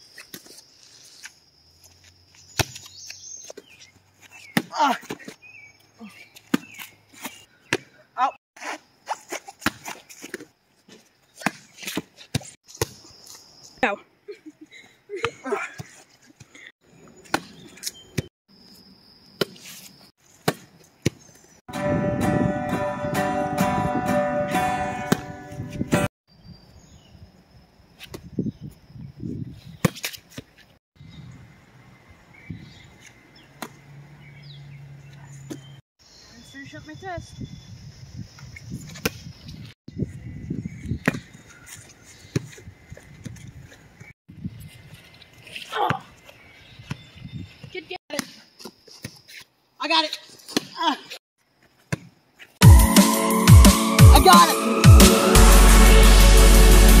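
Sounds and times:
person's voice: 54.0s - 54.8s.

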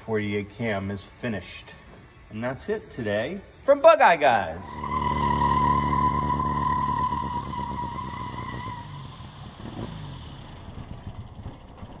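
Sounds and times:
tyre squeal: 4.6s - 9.8s.

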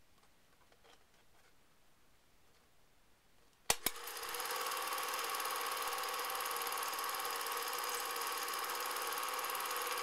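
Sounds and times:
projector switch clicks: 3.7s - 4.0s
film projector whirring: 3.7s - 10.0s.

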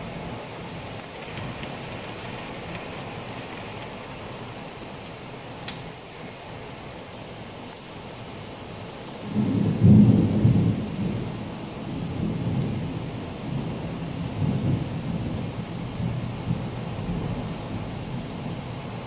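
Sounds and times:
heavy rain: 0.0s - 19.0s
thunder rumbling: 9.3s - 18.2s.

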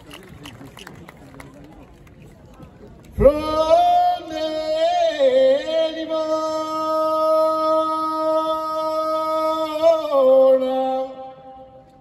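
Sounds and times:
man singing unaccompanied: 3.2s - 11.7s.

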